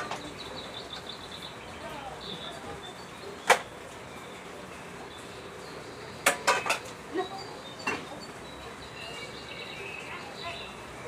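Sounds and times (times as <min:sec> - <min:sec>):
cutlery clinking against a plate: 0:06.2 - 0:07.0.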